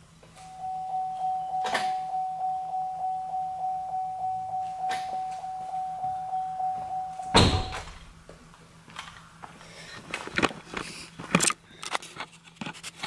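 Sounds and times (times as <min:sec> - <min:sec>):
car warning chime: 0:00.4 - 0:07.9
car door shutting: 0:07.3 - 0:08.1.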